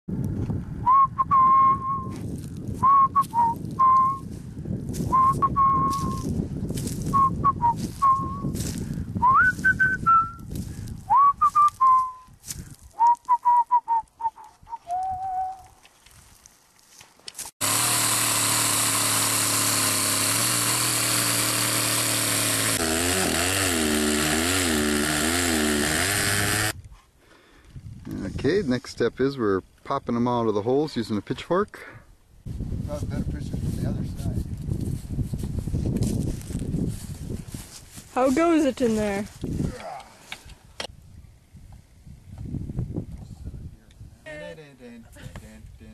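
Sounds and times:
person whistling a tune: 0.8s - 2.2s, 2.8s - 4.3s, 5.0s - 6.3s, 7.1s - 8.6s, 9.2s - 10.5s, 11.1s - 12.3s, 13.0s - 15.7s
chainsaw cutting into ice: 17.6s - 26.8s.

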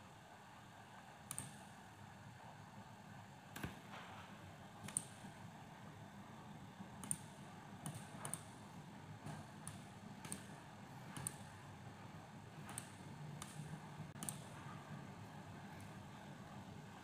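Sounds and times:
computer mouse clicking: 1.3s - 1.6s, 4.8s - 5.1s, 7.0s - 8.5s, 9.2s - 10.5s, 11.1s - 11.4s, 12.6s - 14.6s.

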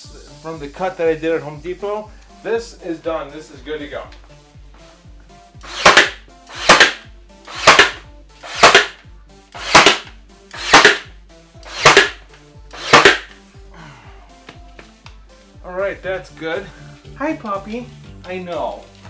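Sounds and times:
nail gun firing: 5.6s - 9.0s, 9.6s - 13.4s
nailer rising whir: 5.6s - 9.0s, 9.6s - 13.4s.

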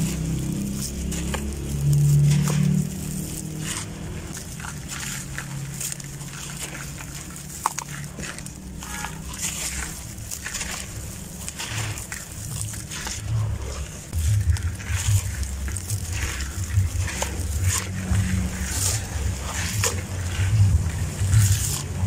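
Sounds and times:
gritty lumps crumbling into water: 0.0s - 22.0s.

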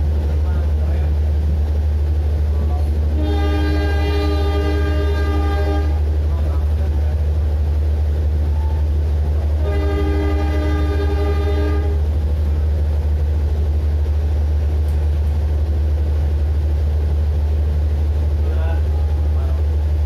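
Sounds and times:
train rumbling: 0.0s - 20.0s
train horn blowing: 3.1s - 6.2s, 9.5s - 12.1s.

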